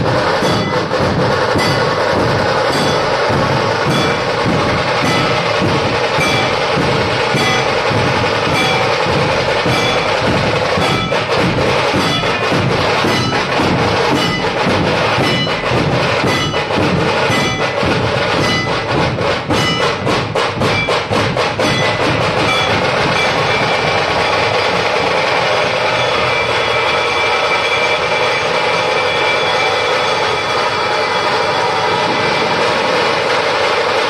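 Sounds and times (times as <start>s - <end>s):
barrel drums beaten with sticks: 0.0s - 26.7s
short ringing notes: 5.0s - 11.3s.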